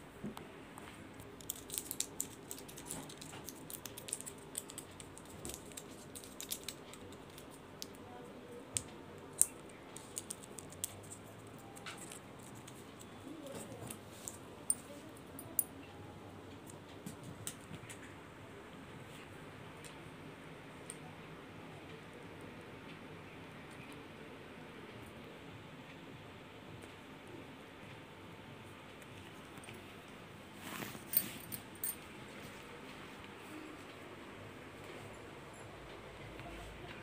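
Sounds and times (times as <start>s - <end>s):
faint room noise: 0.0s - 37.0s
kitten rustling on bedsheet: 30.5s - 31.5s.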